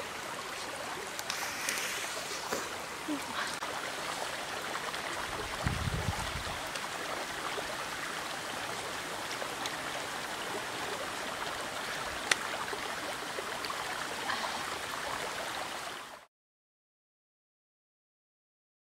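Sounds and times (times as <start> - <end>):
stream trickling over rocks: 0.0 - 16.3.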